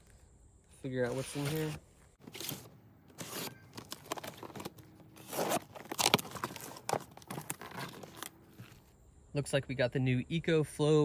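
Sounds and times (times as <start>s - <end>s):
packing tape tearing: 1.1s - 8.7s.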